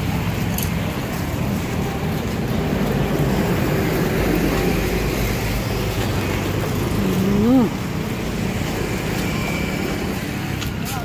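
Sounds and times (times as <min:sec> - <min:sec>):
moving vehicle running noise: 0:00.0 - 0:11.0.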